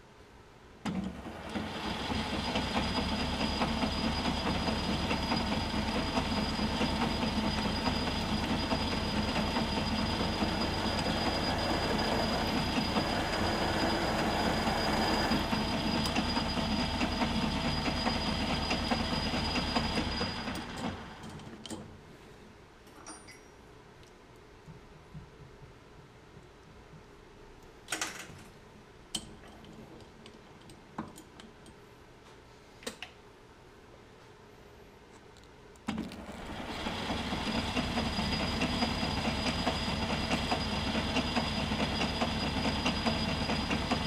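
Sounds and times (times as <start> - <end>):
metal lathe drilling: 1.5 - 21.0, 36.3 - 44.0.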